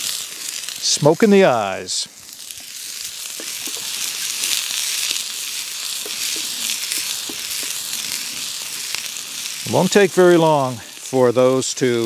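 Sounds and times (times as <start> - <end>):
vegetables sizzling in a pan: 0.0 - 12.0
small clicks and pops: 2.5 - 5.2, 5.8 - 8.3.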